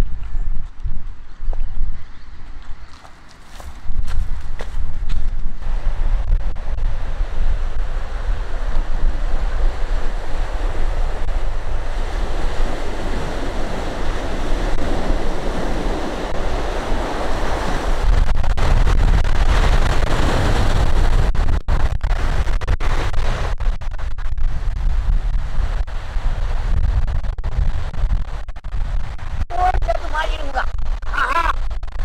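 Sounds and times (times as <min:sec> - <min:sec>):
wind buffeting microphone: 0:00.0 - 0:32.0
sea waves washing: 0:06.6 - 0:21.5.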